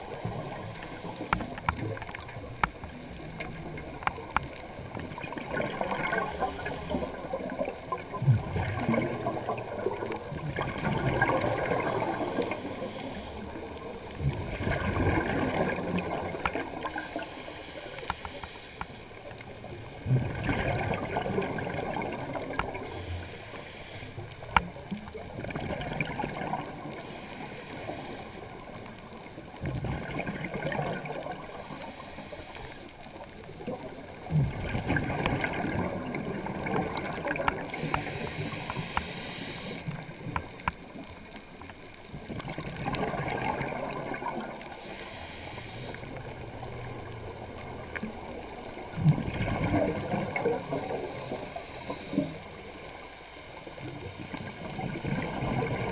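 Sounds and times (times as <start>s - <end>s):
regulator inhalation hiss: 0.0s - 1.6s, 6.0s - 7.3s, 11.8s - 13.6s, 17.0s - 19.0s, 22.8s - 24.4s, 27.0s - 28.7s, 31.5s - 32.9s, 37.7s - 40.0s, 44.7s - 46.3s, 51.1s - 52.4s
exhaust bubbles underwater: 0.0s - 18.0s, 19.2s - 23.4s, 24.2s - 32.1s, 33.0s - 55.9s.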